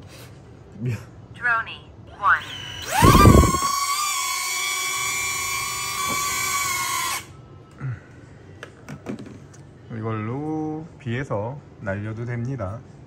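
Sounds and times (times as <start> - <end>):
drone propeller motors whining: 2.3 - 7.3.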